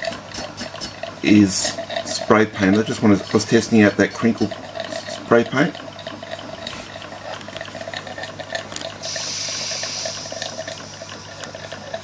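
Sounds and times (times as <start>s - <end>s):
steam engine exhaust chuffing: 8.1s - 12.0s
high steam hiss: 9.0s - 10.4s.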